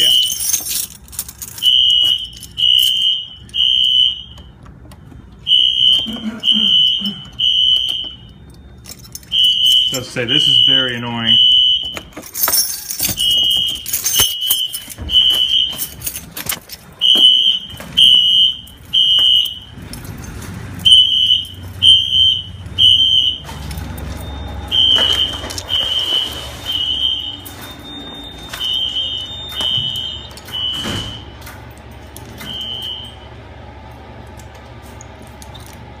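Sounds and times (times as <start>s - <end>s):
handling knocks and clatter: 0.0s - 3.1s, 11.7s - 18.1s
fire alarm horn beeping: 0.0s - 35.8s.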